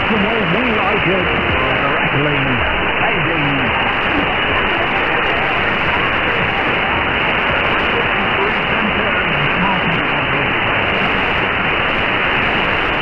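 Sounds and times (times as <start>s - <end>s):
faint radio voice: 0.0s - 11.5s
radio hiss and static: 0.0s - 13.0s.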